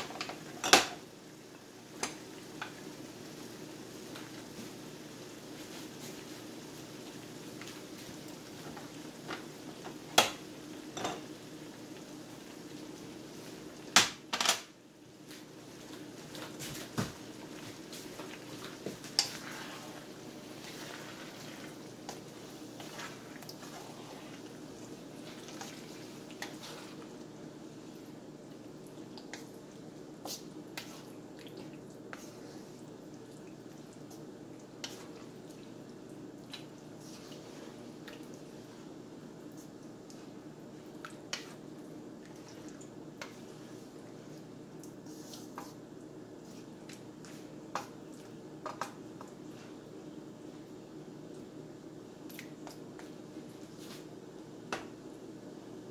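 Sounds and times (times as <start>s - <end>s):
thick sauce squishing and simmering: 15.0s - 55.9s.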